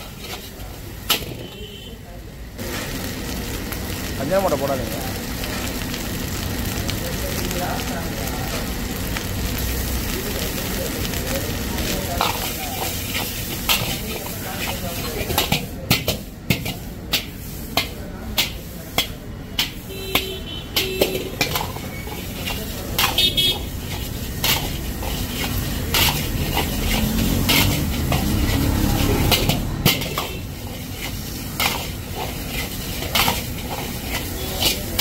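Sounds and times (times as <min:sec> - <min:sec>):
metal ladle clanging on wok: 0:15.2 - 0:23.2, 0:29.2 - 0:30.4.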